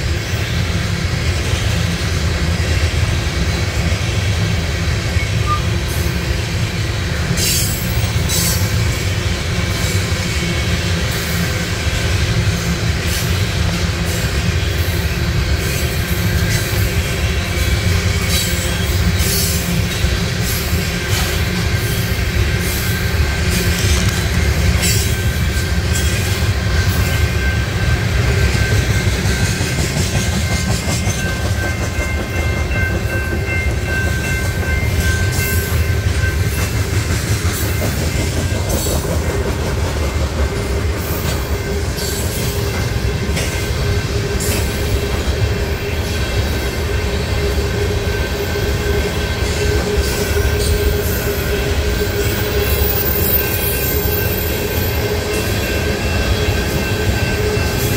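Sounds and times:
freight train rumbling past: 0.0s - 57.9s
high wheel squeal: 5.2s - 5.8s, 45.6s - 57.9s.

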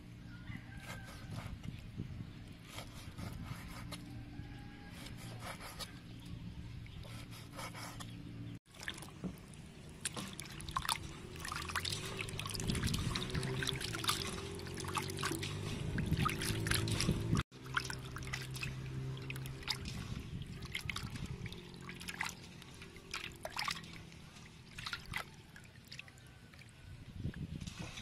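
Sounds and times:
water sloshing in metal basin: 8.7s - 28.0s.

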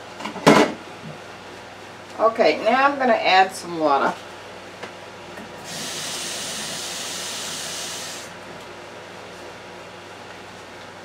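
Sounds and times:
water running from tap: 5.7s - 8.3s.

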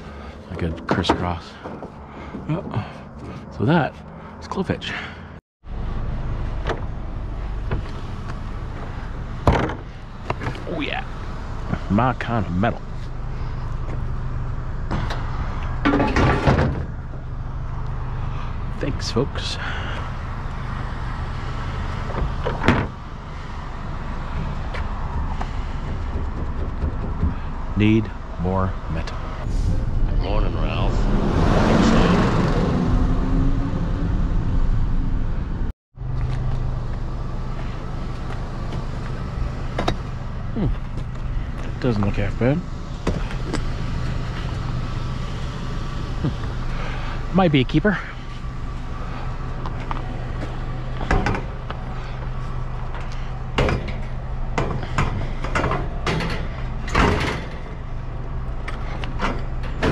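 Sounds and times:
low engine hum: 0.0s - 59.9s
vehicle engine and road noise: 0.0s - 59.9s
junk knocking and clanking: 0.5s - 4.1s, 6.4s - 10.7s, 14.8s - 17.3s, 21.6s - 23.2s, 24.1s - 28.3s, 49.1s - 59.9s.

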